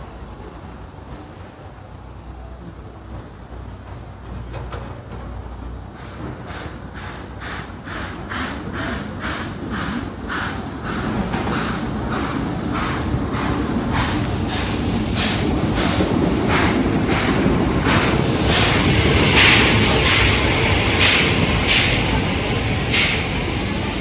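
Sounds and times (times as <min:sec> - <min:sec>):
train rumble: 0:00.0 - 0:24.0
steam hissing: 0:05.2 - 0:24.0
steam locomotive beat: 0:05.4 - 0:24.0.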